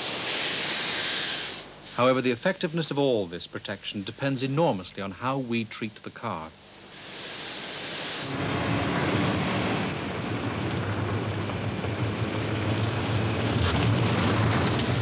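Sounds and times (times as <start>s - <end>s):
tyres hissing on wet road: 0.0s - 4.8s, 6.8s - 13.5s
car engine hum: 8.2s - 15.0s.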